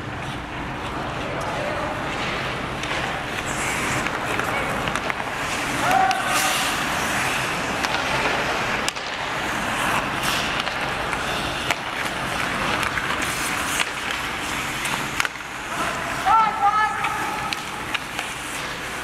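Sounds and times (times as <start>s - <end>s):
hockey sticks and puck clacking: 0.0s - 19.0s
skates scraping on ice: 0.1s - 19.0s.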